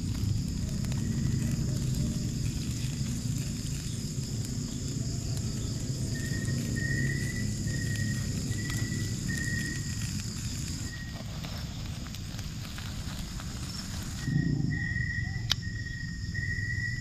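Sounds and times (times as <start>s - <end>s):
insects shrilling: 0.0s - 17.0s
low rumble: 11.7s - 17.0s.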